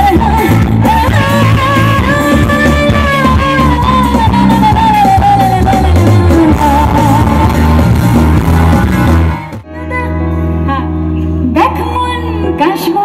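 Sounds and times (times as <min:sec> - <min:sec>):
woman singing: 0:00.0 - 0:07.9, 0:11.5 - 0:13.0
drums: 0:00.0 - 0:09.9
electric guitar: 0:00.0 - 0:13.0.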